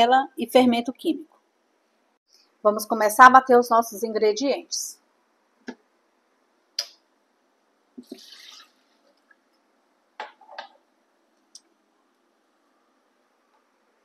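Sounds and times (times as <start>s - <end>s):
liquid pouring: 8.0s - 9.4s.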